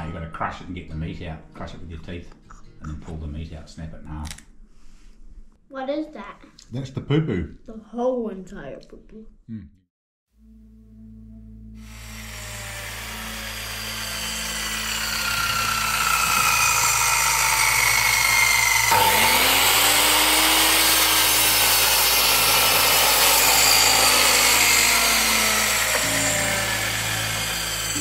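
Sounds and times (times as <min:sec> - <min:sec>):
power tool cutting wood: 0:11.8 - 0:28.0.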